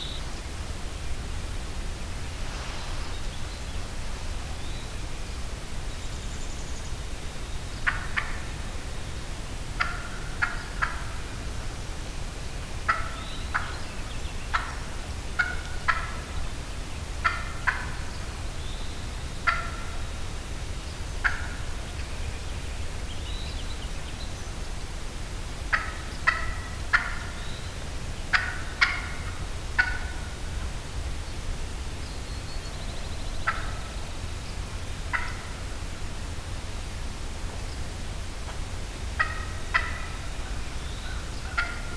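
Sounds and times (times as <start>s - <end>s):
turkey calling: 9.8s - 11.1s, 12.9s - 13.8s, 14.5s - 16.4s, 17.2s - 18.0s, 19.4s - 20.1s, 21.2s - 21.6s, 25.7s - 27.4s, 28.3s - 30.4s, 33.4s - 34.0s, 35.1s - 35.6s, 39.2s - 41.9s.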